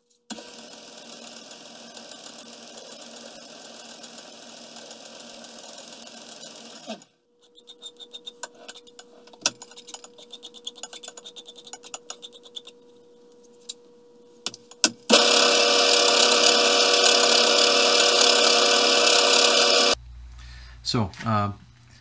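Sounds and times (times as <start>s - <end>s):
lathe running: 0.3s - 7.0s, 15.1s - 20.0s
hand file rasping on steel: 7.5s - 12.7s.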